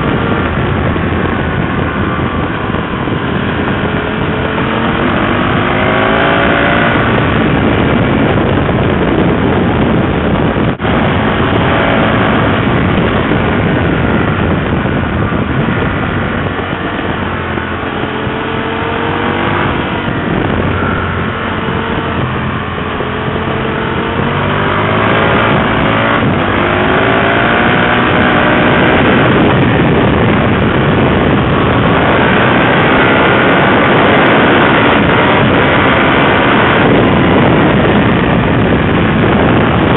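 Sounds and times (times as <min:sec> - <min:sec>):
motorcycle engine accelerating: 0:00.0 - 0:39.9
wind rushing: 0:00.0 - 0:39.9.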